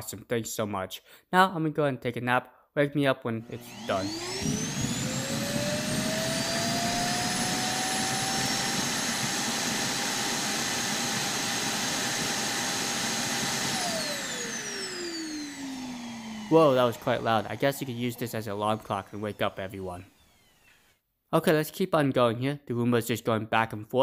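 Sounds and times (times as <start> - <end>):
suction fan whining: 3.4 - 20.9.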